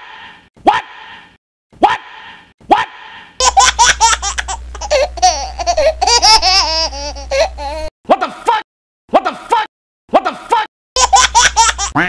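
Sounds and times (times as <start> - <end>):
warbling laughter: 2.8 - 7.9
low hum: 3.9 - 7.9.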